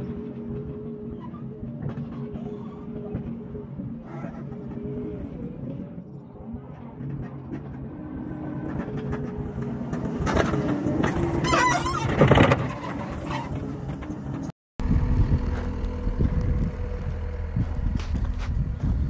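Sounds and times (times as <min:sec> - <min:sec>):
track loader engine: 0:00.0 - 0:19.0
metallic squeaks and clatter: 0:10.2 - 0:14.5.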